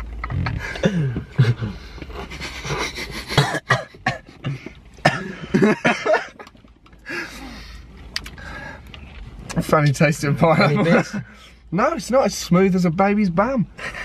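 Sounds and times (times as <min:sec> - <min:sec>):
people coughing: 0:00.7 - 0:01.7, 0:03.2 - 0:06.4.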